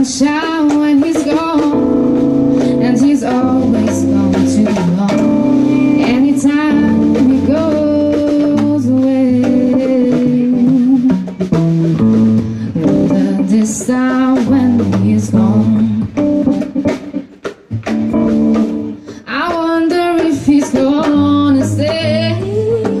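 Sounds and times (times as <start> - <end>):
woman singing with vibrato: 0.0 - 16.4, 19.2 - 23.0
drum kit: 0.0 - 23.0
electric guitar: 0.0 - 23.0
electric bass: 1.6 - 19.1.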